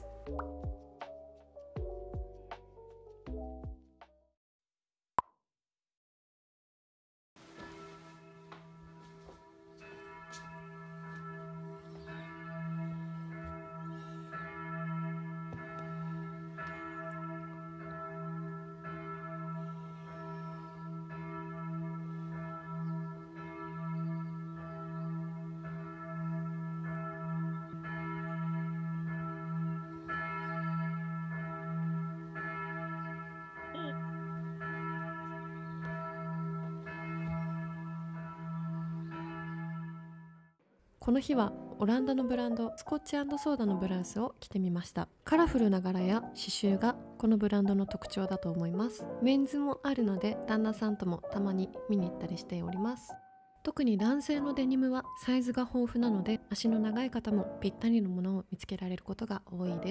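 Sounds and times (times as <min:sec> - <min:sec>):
church bells pealing: 0:07.5 - 0:40.2, 0:46.0 - 0:53.2, 0:53.8 - 0:57.8.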